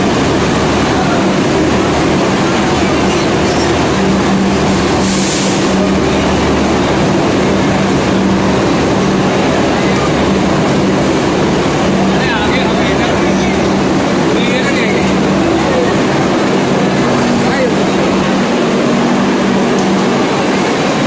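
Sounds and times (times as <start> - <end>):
train wheels rumbling past: 0.0 - 21.0
short air hiss: 5.0 - 5.7.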